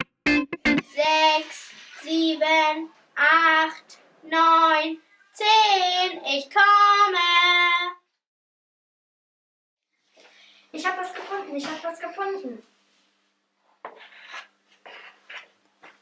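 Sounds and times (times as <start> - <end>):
child singing: 0.9 - 8.0.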